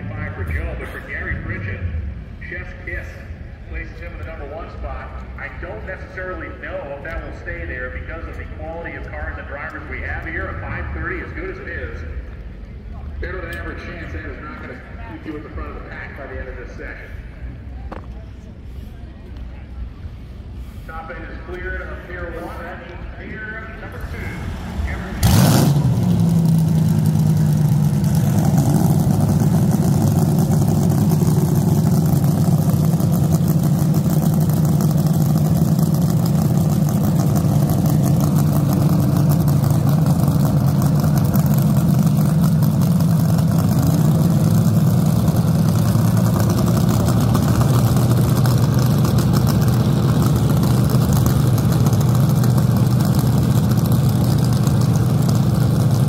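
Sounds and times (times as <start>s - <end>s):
dragster engine idling loudly: 18.4s - 56.0s.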